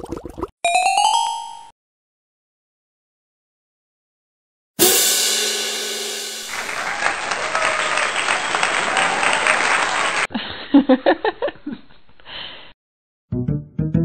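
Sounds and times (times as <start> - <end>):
applause: 6.4 - 10.3.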